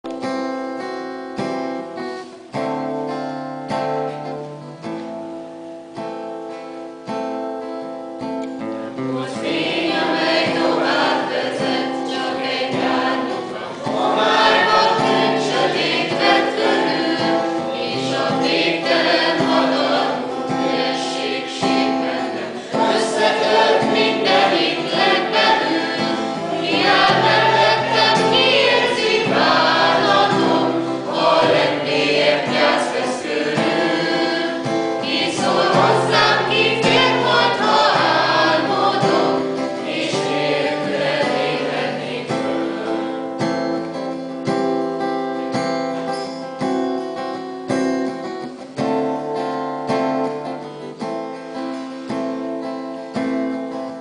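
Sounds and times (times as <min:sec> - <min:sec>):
choir singing in parts: 0:08.8 - 0:44.4.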